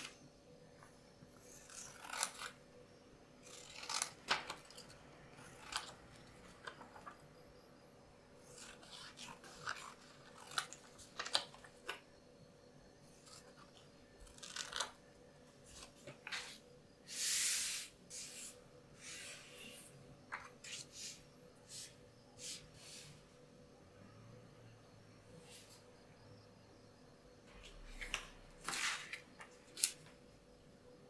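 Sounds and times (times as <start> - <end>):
paper sliding hiss: 16.3 - 19.8
paper laid on cutting mat: 27.9 - 29.9.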